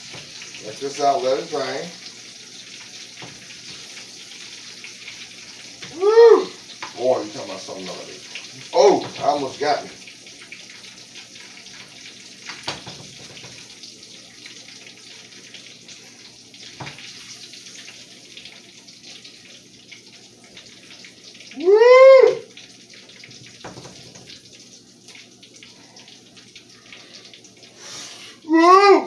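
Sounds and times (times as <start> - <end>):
livers sizzling in oil: 0.0 - 28.6
voice-like call: 5.9 - 6.6, 21.6 - 22.5, 28.4 - 29.0.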